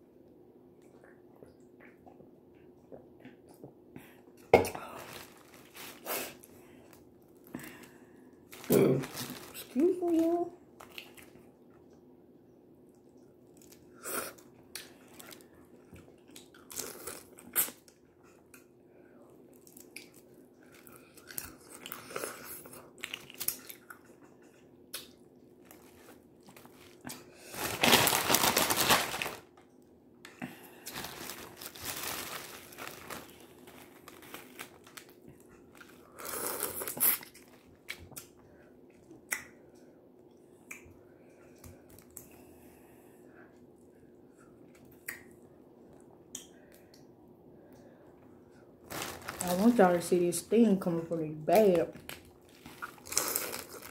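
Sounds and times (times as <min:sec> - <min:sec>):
chewing: 0:19.5 - 0:27.2.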